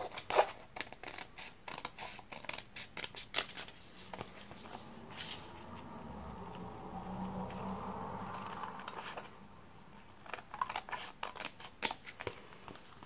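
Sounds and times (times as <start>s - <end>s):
scissors snipping paper: 0.0s - 4.3s, 10.2s - 13.0s.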